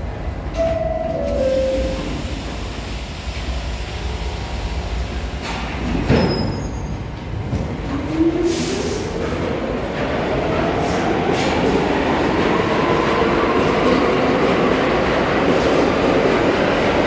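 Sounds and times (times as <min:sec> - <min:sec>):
train clunk: 0:05.3 - 0:08.1.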